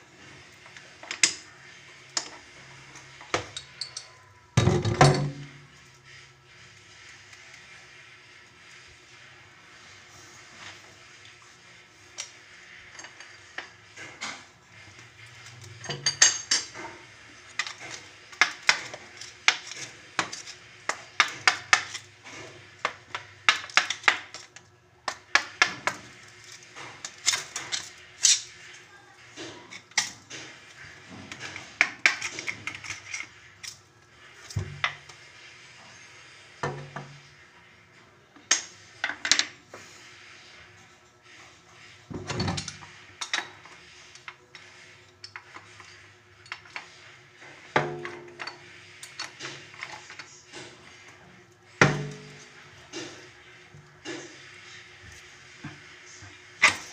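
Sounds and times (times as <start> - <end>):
hard objects clinking and clattering: 0.5 - 5.8.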